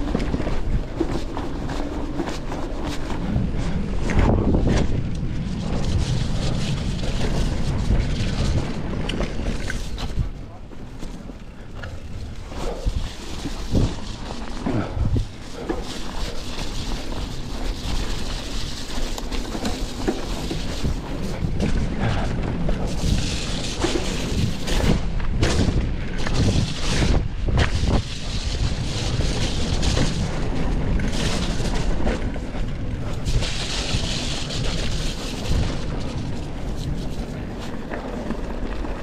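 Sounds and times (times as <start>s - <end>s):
bike rattling over bumps: 0.0s - 39.0s
tyre noise on dirt: 0.0s - 39.0s
wind buffeting microphone: 0.0s - 39.0s.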